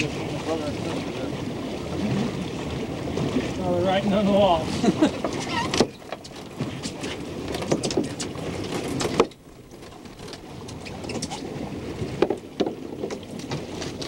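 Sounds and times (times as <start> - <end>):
boat noise: 0.0 - 14.0
fish knocking on boat deck: 12.2 - 13.2.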